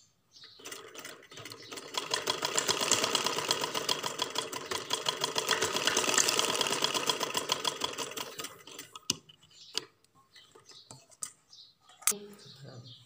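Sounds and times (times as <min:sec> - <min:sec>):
sewing machine stitching: 0:00.6 - 0:09.1.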